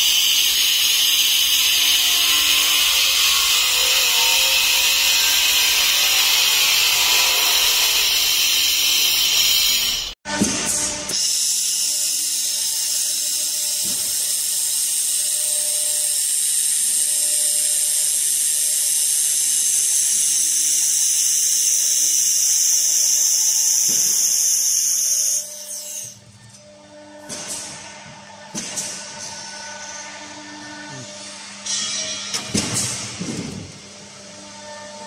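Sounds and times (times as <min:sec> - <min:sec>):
laser welder hiss: 0:00.0 - 0:10.2, 0:11.1 - 0:26.2.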